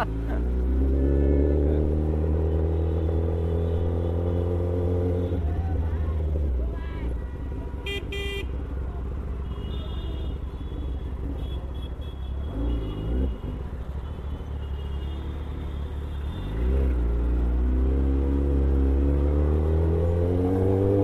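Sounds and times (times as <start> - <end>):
motorcycle engine idling and revving: 0.0 - 21.0.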